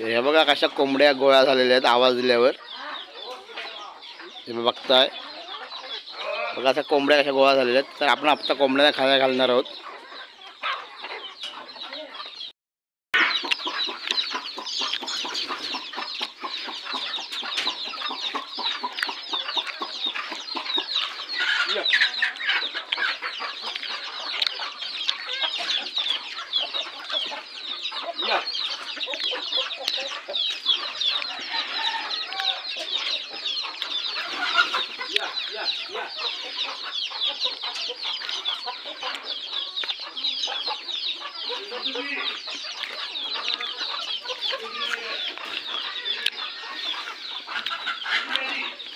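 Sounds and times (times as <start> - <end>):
chickens clucking: 0.0 - 12.5, 13.2 - 48.9.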